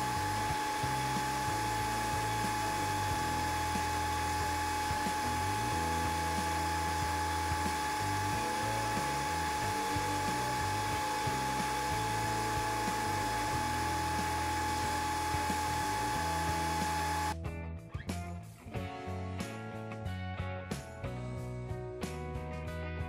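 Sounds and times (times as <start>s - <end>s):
sandblast gun hissing: 0.0s - 17.4s.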